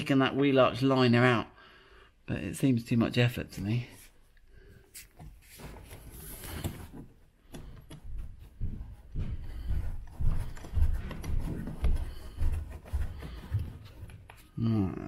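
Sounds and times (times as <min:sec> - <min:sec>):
plastic knocks and scrapes: 0:05.2 - 0:14.5.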